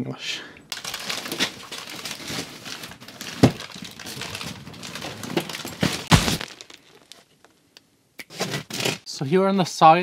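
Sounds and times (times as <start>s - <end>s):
plastic wrapping rustling: 0.7s - 7.4s
heavy thumps: 4.9s - 7.2s.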